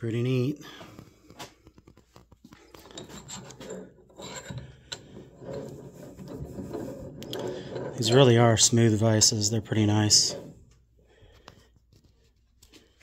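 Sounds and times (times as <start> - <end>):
vise screw scraping: 2.6 - 9.0, 9.9 - 10.8.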